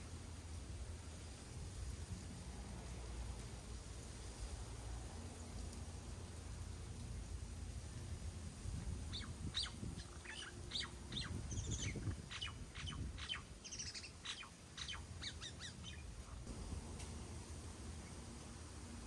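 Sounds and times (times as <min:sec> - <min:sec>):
small birds chirping: 0:08.8 - 0:16.5.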